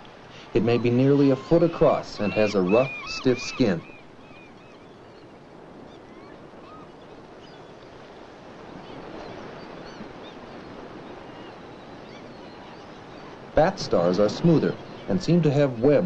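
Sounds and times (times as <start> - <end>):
surf washing: 0.0 - 16.0.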